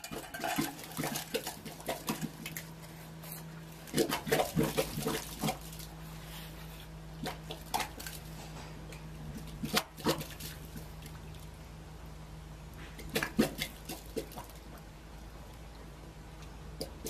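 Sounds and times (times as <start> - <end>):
steady low hum: 0.0 - 17.0
air bubbling through slurry: 3.6 - 6.3, 12.8 - 16.1.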